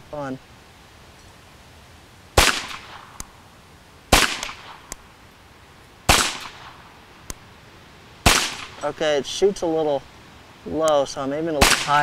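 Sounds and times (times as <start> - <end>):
pistol shots with echo: 2.4 - 3.2, 4.1 - 4.9, 6.1 - 6.8, 8.2 - 8.8, 11.6 - 12.0
faint sharp click: 7.2 - 7.4.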